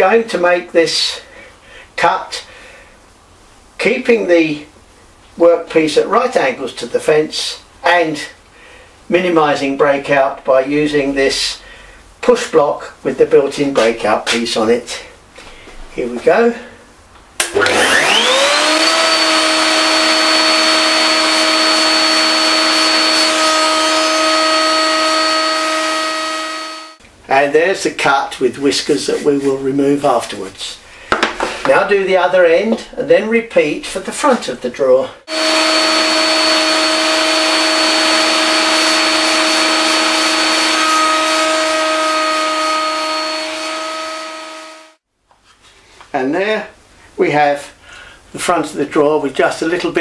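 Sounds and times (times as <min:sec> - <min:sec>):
router whining: 0:17.4 - 0:27.0, 0:35.3 - 0:45.0.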